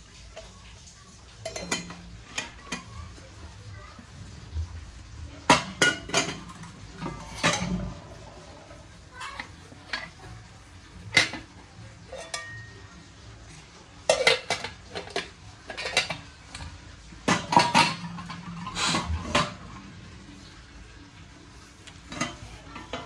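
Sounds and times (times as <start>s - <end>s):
metal utensils clinking: 1.4s - 3.1s, 5.4s - 13.0s, 14.0s - 19.9s, 21.9s - 23.0s.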